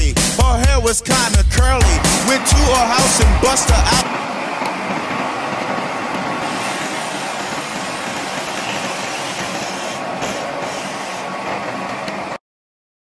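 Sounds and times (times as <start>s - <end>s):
drill press boring into wood: 2.0s - 12.3s.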